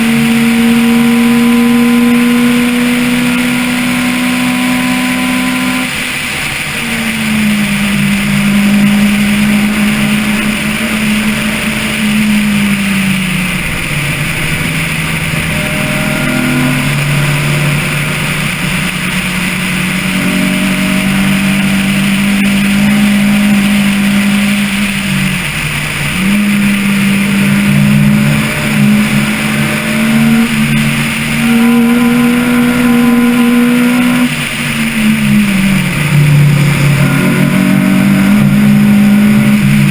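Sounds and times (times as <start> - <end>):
car engine revving with gear changes: 0.0 - 39.9
steady rushing noise: 0.0 - 39.9.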